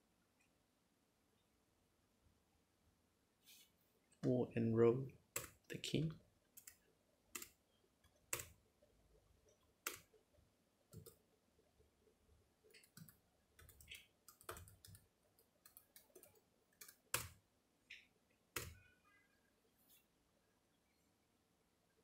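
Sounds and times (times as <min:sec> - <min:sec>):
laptop keyboard keys clicking: 0:12.7 - 0:17.4.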